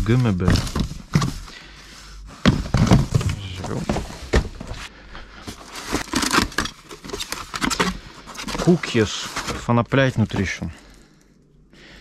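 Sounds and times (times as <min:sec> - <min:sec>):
cardboard and paper rustling: 0:00.0 - 0:01.7, 0:02.4 - 0:10.8
cardboard carton opened: 0:02.4 - 0:04.8, 0:05.5 - 0:10.5.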